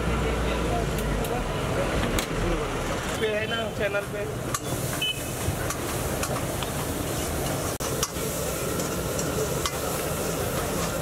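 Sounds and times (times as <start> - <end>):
broth sizzling hiss: 3.9 - 11.0.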